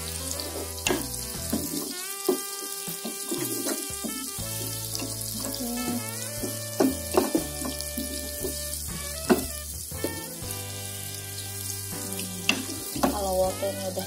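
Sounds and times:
vegetables sizzling in hot oil: 0:00.0 - 0:14.0
spatula knocking against pan: 0:00.9 - 0:04.2.

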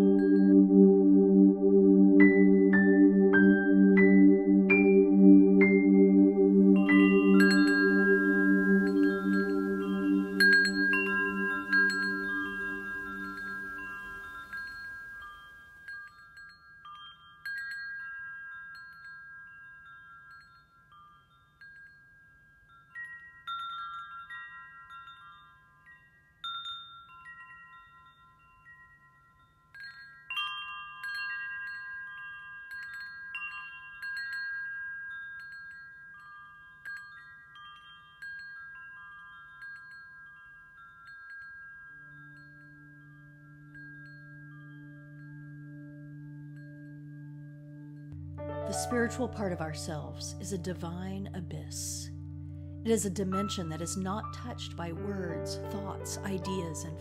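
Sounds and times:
low steady tone: 0:00.0 - 0:16.0, 0:41.8 - 0:57.0
metal wind chimes ringing: 0:06.8 - 0:57.0.

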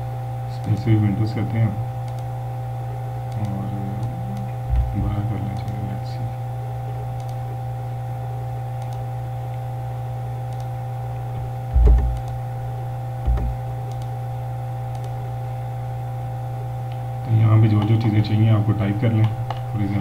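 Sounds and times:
low electrical hum: 0:00.0 - 0:20.0
computer mouse clicks: 0:02.0 - 0:02.3, 0:03.3 - 0:05.9, 0:07.2 - 0:07.4, 0:08.8 - 0:09.0, 0:10.5 - 0:10.7, 0:11.7 - 0:12.4, 0:13.2 - 0:14.1, 0:14.9 - 0:15.2
dull low thumps: 0:04.6 - 0:05.2, 0:11.4 - 0:12.3, 0:13.2 - 0:13.6.

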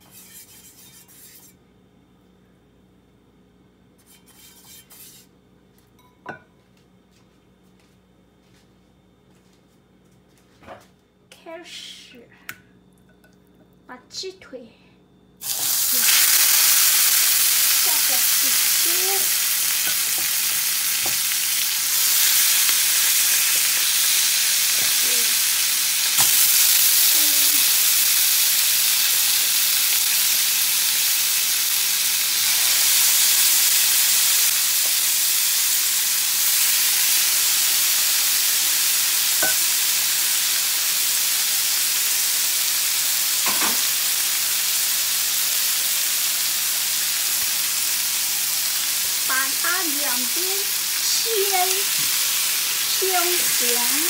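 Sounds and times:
chicken sizzling in frying pan: 0:15.4 - 0:54.0.

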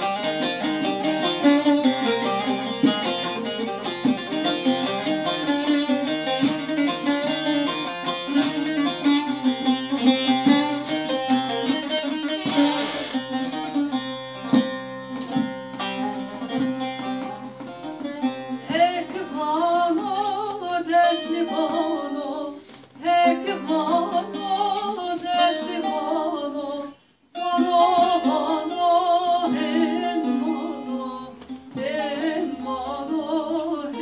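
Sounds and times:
plucked long-necked lute: 0:00.0 - 0:34.0
woman singing: 0:18.6 - 0:34.0.

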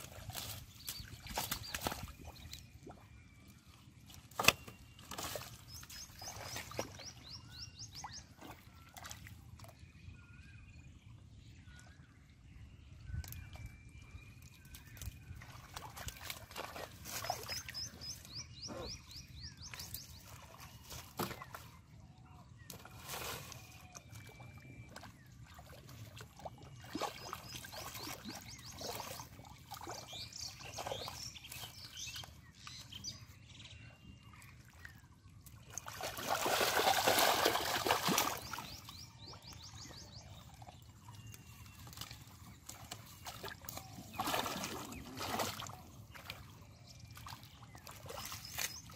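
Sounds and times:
hands splashing in muddy water: 0:00.0 - 0:02.6, 0:35.7 - 0:38.9, 0:41.2 - 0:46.5.

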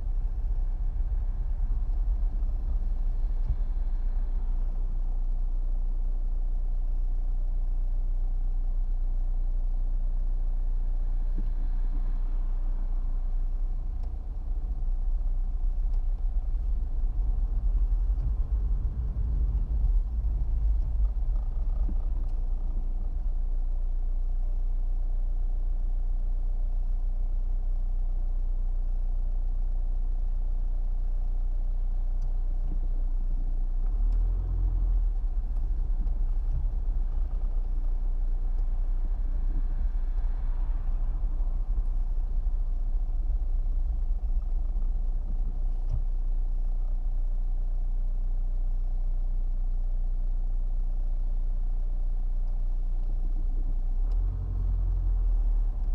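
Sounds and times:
car engine and tyre rumble: 0:00.0 - 0:55.9.

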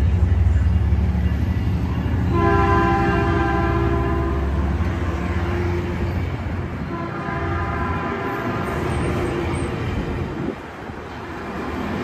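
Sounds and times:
train rumbling past: 0:00.0 - 0:12.0
train horn: 0:02.3 - 0:04.9, 0:06.8 - 0:09.1.

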